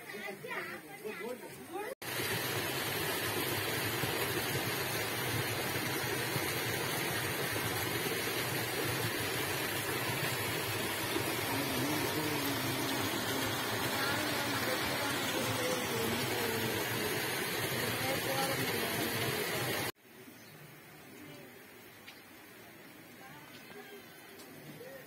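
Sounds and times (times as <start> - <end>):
stream rushing: 2.0 - 20.0.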